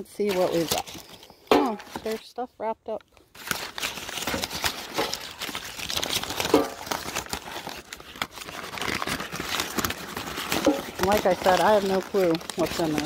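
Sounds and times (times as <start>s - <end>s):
wrapping crinkling: 0.0s - 13.0s.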